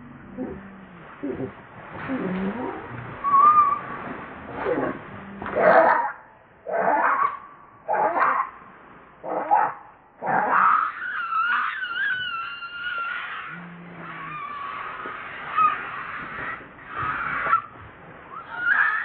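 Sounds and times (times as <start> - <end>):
baby monkey screaming: 10.2 - 19.0.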